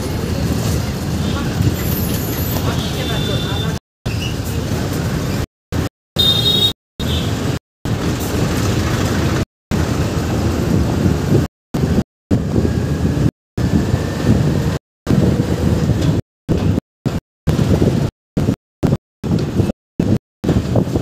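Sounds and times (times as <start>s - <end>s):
dense traffic rumble: 0.0s - 21.0s
short high horn beep: 6.2s - 7.3s.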